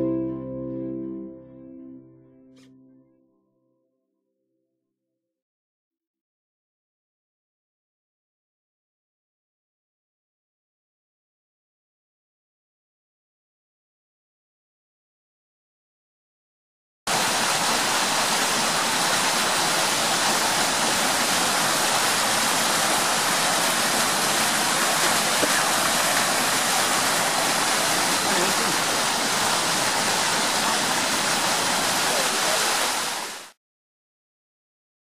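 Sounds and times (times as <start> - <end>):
stream rushing over rocks: 17.1 - 33.6.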